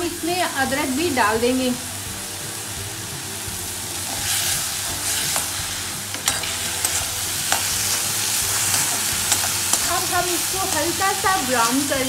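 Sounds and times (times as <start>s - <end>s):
vegetables sizzling in oil: 0.0s - 12.0s
spoon clicking against pan: 8.6s - 10.0s.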